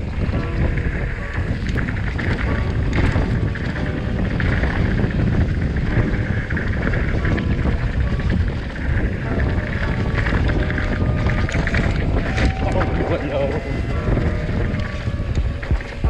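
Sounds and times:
bike knocks and rattles: 0:00.0 - 0:16.0
bike tyres rumbling on dirt: 0:00.0 - 0:16.0
wind buffeting microphone: 0:00.0 - 0:16.0.

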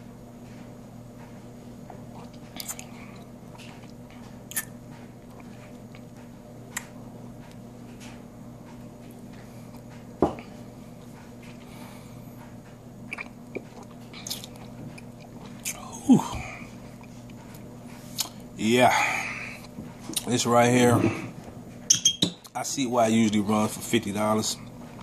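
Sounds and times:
lip smacks and mouth clicks: 0:02.2 - 0:05.5, 0:18.2 - 0:18.4.

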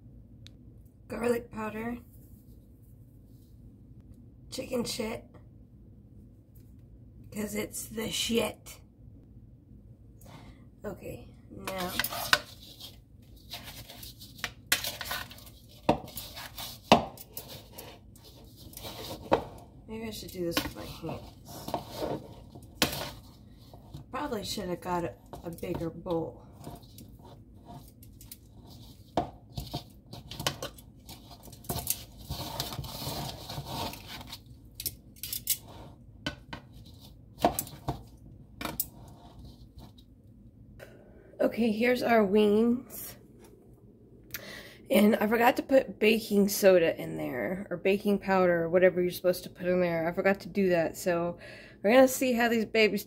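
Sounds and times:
rubbing and scraping in bowl: 0:11.6 - 0:34.6, 0:35.3 - 0:40.2.

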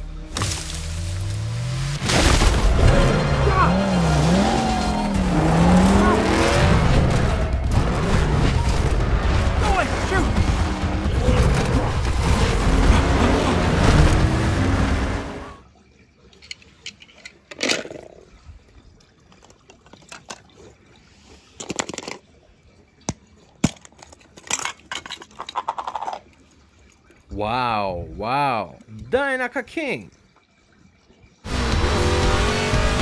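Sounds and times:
film soundtrack music: 0:00.0 - 0:15.6, 0:31.5 - 0:33.0
water splashing and sloshing: 0:00.0 - 0:31.5.

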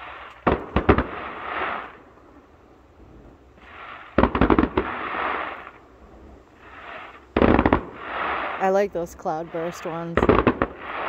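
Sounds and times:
firework crackling hiss: 0:00.0 - 0:02.0, 0:03.1 - 0:11.0
distant firework bangs: 0:00.0 - 0:02.4, 0:03.2 - 0:11.0.

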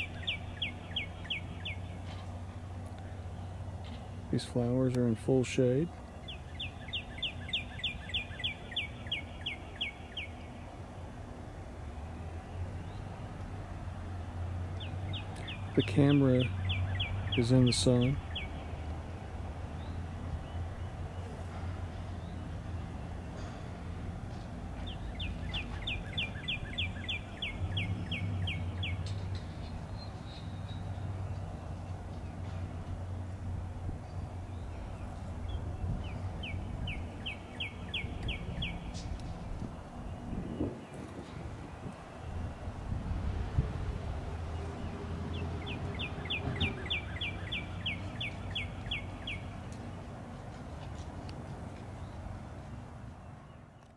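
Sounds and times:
songbird whistling: 0:00.0 - 0:01.9, 0:06.3 - 0:10.4, 0:24.8 - 0:29.1, 0:35.5 - 0:39.0, 0:45.6 - 0:49.5
low outdoor rumble: 0:00.0 - 0:53.9
songbird singing: 0:00.0 - 0:53.9.

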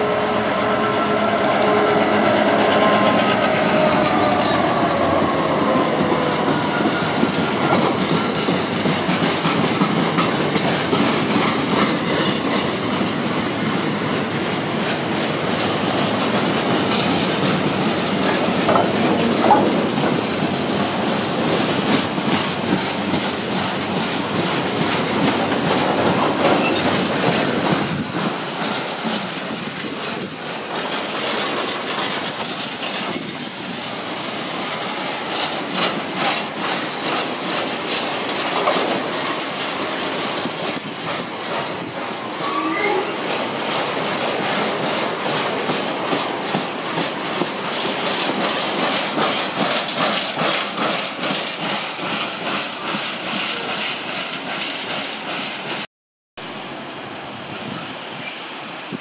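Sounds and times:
train wheel squeal: 0:00.0 - 0:09.9, 0:26.1 - 0:28.0, 0:42.2 - 0:43.5, 0:48.6 - 0:55.8, 0:58.0 - 0:59.0
freight train wheels rumbling and clicking: 0:00.0 - 0:55.9
diesel locomotive engine: 0:00.0 - 0:59.0.

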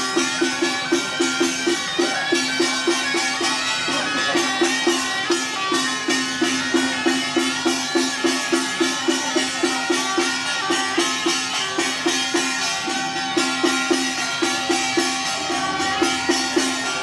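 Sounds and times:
traditional procession music: 0:00.0 - 0:17.0.

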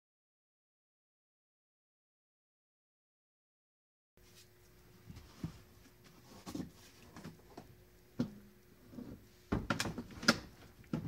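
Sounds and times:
faint steady hum: 0:04.2 - 0:11.0.

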